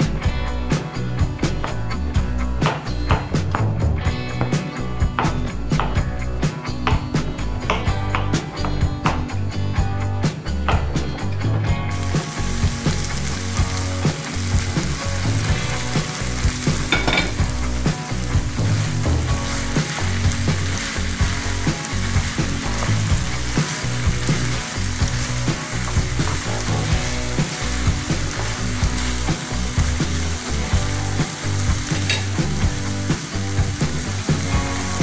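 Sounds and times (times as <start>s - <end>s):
food sizzling in a frying pan: 11.9s - 35.0s
wooden spatula scraping: 18.2s - 29.5s.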